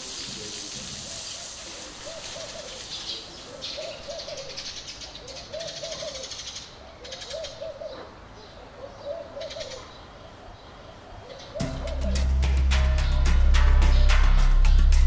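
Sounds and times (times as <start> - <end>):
dove cooing: 1.0 - 10.0, 11.2 - 12.2
high rapid chirping: 11.6 - 15.0.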